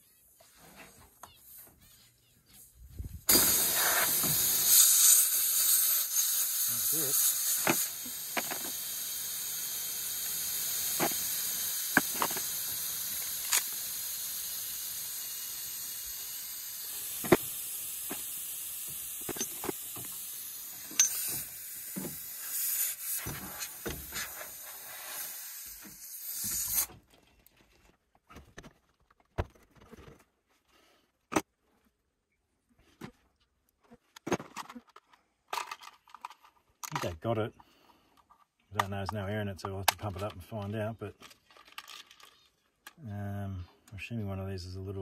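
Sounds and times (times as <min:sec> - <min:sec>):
air hissing from a tyre: 0:03.2 - 0:27.0.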